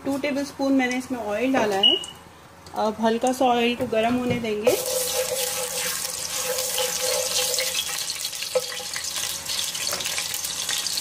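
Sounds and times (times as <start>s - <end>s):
hot oil hissing and crackling: 4.7s - 11.0s.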